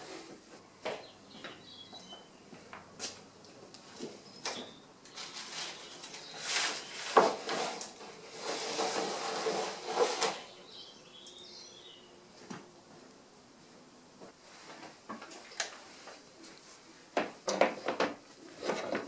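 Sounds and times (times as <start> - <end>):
faint bird chirps: 1.0 - 2.5
wooden boards scraping and clattering: 5.2 - 10.5, 17.5 - 19.0.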